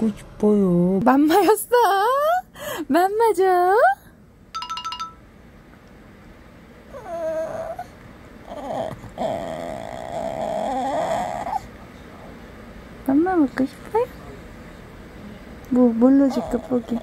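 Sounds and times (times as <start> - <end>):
dog whining and moaning: 6.9 - 11.7, 16.2 - 17.0.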